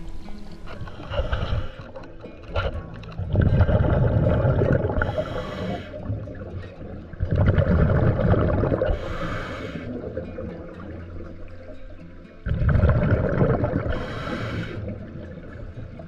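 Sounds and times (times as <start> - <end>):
exhaled bubbles rumbling: 0.0 - 16.0
regulator hiss: 5.0 - 6.1, 9.0 - 10.0, 14.0 - 14.9.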